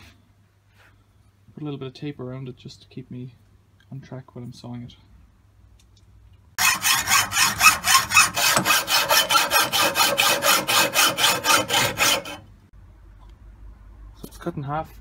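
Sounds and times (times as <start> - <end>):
hacksaw cutting metal tube: 6.6 - 12.5.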